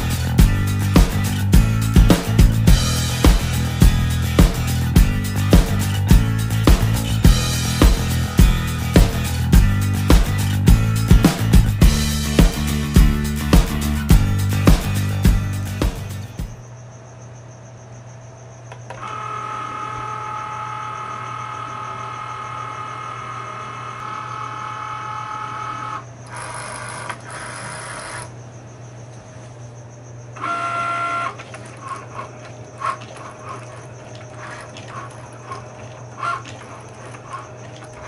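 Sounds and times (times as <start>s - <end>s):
carriage whirs and clicks: 18.7s - 28.3s, 30.4s - 38.0s
cutting machine motors whining: 18.9s - 28.3s, 30.4s - 38.0s.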